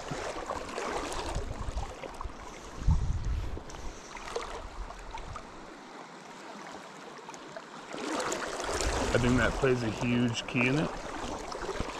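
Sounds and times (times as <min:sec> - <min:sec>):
river current rippling: 0:00.0 - 0:11.9
low rumbles on microphone: 0:02.8 - 0:03.7.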